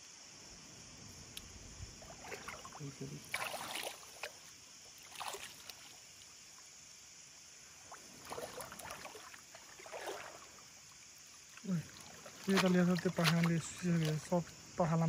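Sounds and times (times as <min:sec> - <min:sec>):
water splashing and dripping: 0:02.0 - 0:06.4, 0:07.8 - 0:14.5.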